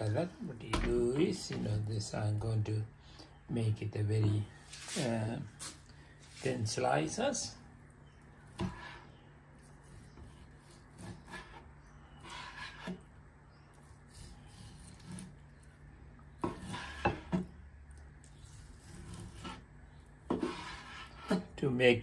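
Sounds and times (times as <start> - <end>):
knife scraping cutting board: 8.5 - 13.0, 13.8 - 15.4, 16.4 - 17.5, 18.4 - 19.7, 20.3 - 21.5.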